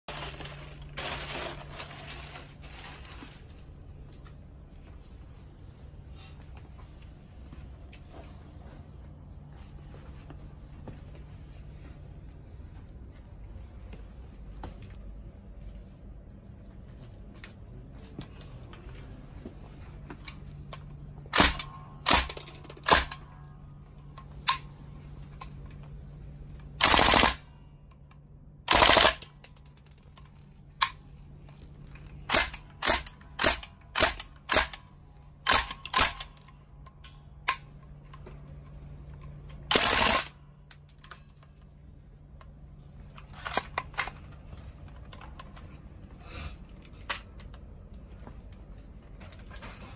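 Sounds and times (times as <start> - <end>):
full-auto gun bursts: 26.8 - 27.4, 28.7 - 29.3, 39.7 - 40.4.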